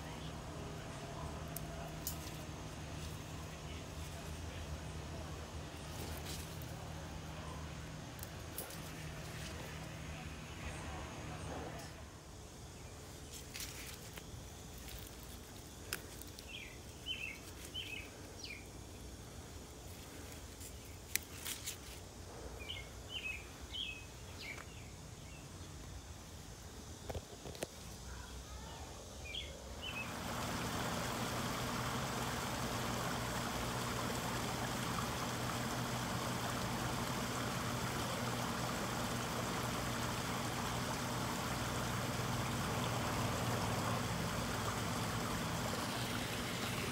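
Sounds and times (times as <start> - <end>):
small birds chirping: 12.6 - 22.0, 22.6 - 26.1, 27.6 - 46.9
water trickling into pond: 29.9 - 46.9.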